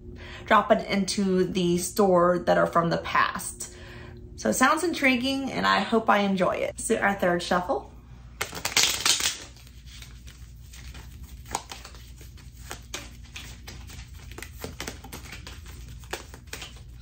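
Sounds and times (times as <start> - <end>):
cards being shuffled: 8.4 - 17.0.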